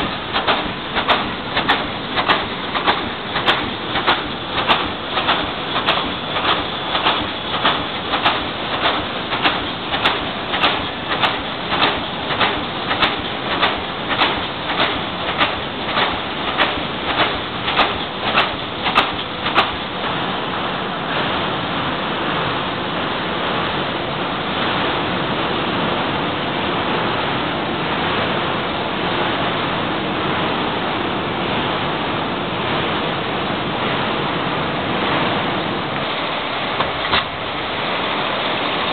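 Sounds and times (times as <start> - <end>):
welding machine clacks: 0.0 - 20.3, 36.0 - 37.6
factory machinery rushing: 0.0 - 38.9.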